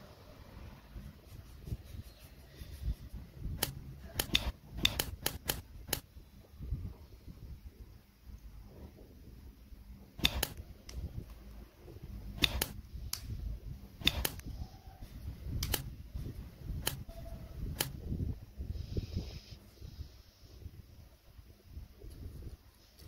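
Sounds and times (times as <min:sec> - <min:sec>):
hands rubbing and handling: 0:00.9 - 0:06.0
plastic parts clicking together: 0:03.6 - 0:06.0.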